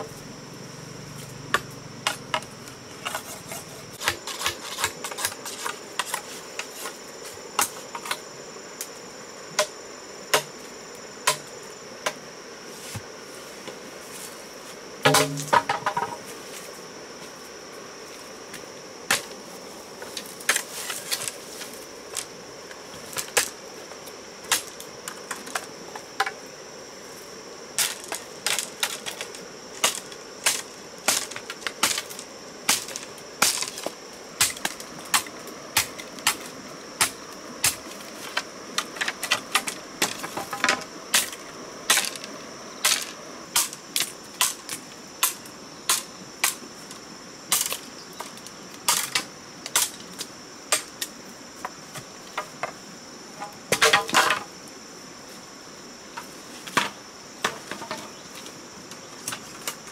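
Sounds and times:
high-pitched insect drone: 0.0s - 44.4s.

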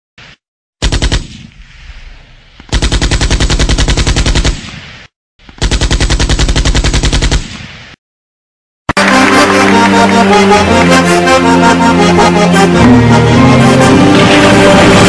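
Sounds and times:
machine-gun bursts: 0.8s - 1.4s, 2.7s - 4.7s, 5.6s - 7.6s.

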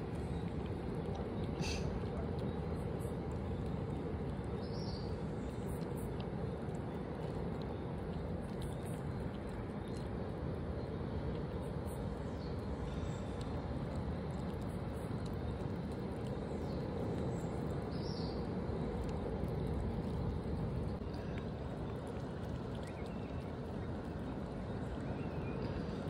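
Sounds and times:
low outdoor rumble: 0.0s - 26.0s
faint bird chirps: 1.4s - 3.7s.

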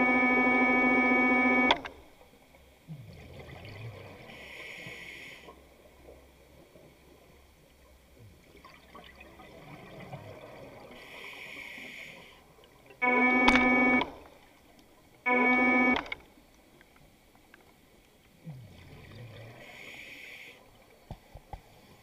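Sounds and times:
underwater exhale bubbling: 2.9s - 5.6s, 8.5s - 12.1s, 18.4s - 20.8s
regulator hiss on inhale: 4.3s - 5.6s, 11.0s - 12.5s, 19.6s - 20.8s.

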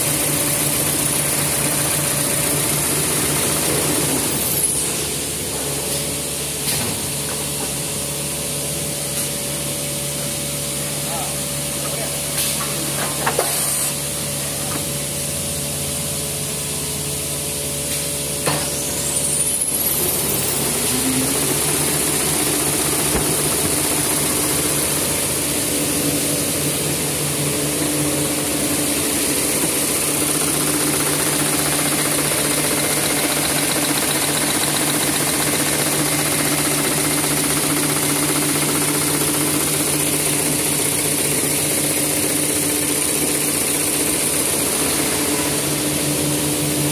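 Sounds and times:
paper rewinding machine humming: 19.8s - 25.8s, 29.1s - 45.6s.

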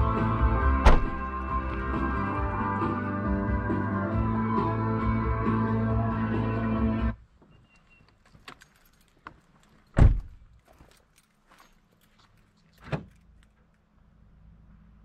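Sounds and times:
light clicks and rattles: 8.0s - 14.0s.

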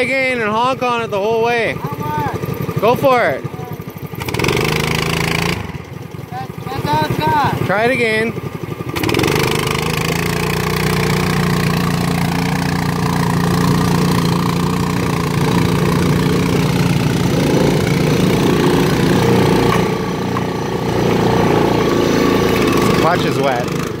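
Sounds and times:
atv engine under load: 0.0s - 24.0s
go-kart engine at full throttle: 0.0s - 24.0s.

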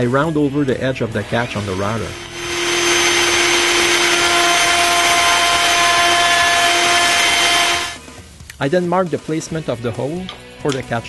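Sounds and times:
electric router cutting wood: 1.5s - 8.0s.

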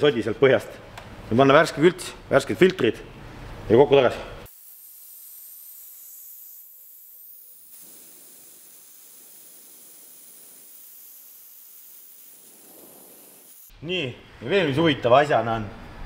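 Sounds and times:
vacuum fluid extractor hissing: 4.4s - 13.8s.

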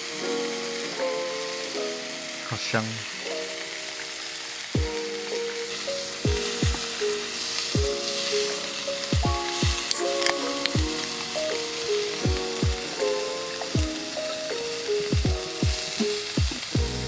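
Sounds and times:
background music with soft chords: 0.0s - 17.0s
beef sizzling in a hot pan: 0.0s - 17.0s
deep falling kick drums: 6.3s - 6.8s, 9.2s - 9.8s, 12.3s - 12.8s, 15.1s - 15.8s, 16.4s - 17.0s.

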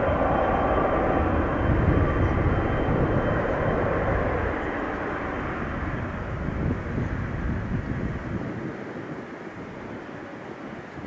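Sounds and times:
faint high whine: 0.0s - 8.0s
jet engine rumble: 0.0s - 11.0s.

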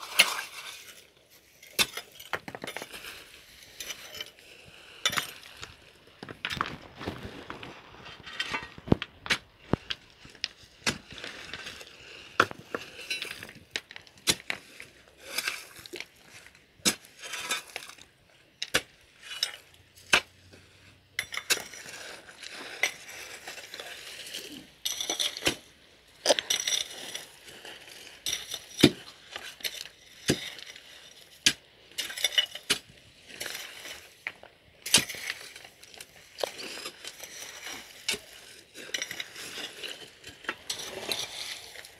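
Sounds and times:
gritty scraping in gravel: 0.0s - 18.2s, 21.2s - 41.9s
metal bar clinking on gravel: 32.0s - 32.8s.

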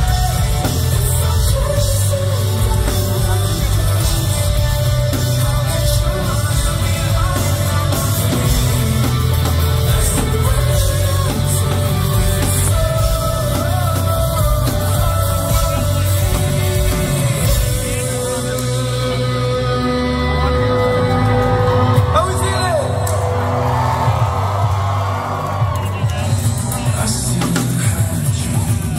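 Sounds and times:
live rock band playing: 0.0s - 28.9s
singer's vocals: 0.0s - 28.9s.

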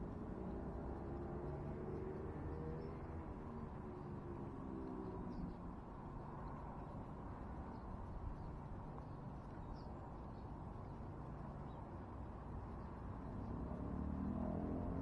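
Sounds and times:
small birds chirping: 7.6s - 12.0s.

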